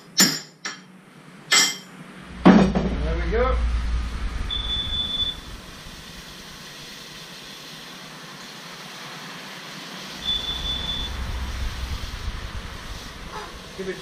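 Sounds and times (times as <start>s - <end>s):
steady background rush: 2.1s - 7.2s, 10.2s - 14.0s
alarm beeping: 3.6s - 6.3s, 10.2s - 13.7s.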